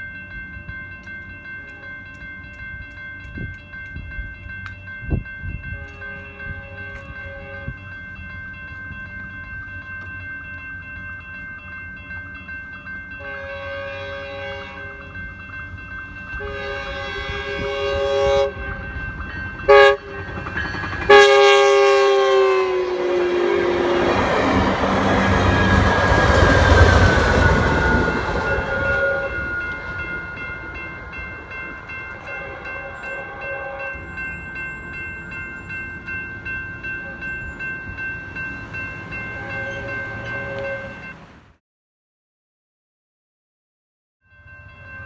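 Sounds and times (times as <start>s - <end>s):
crossing warning bell ringing: 0.0s - 41.5s, 44.3s - 45.0s
train passing: 0.0s - 41.6s
train horn blasts: 5.6s - 7.8s, 13.2s - 15.2s, 16.4s - 19.0s, 19.6s - 20.3s, 21.1s - 30.3s, 32.1s - 34.1s, 39.3s - 41.1s.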